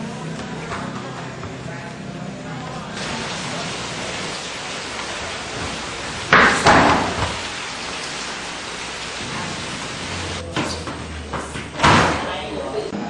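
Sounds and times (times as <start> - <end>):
recording hiss: 3.0 - 10.4.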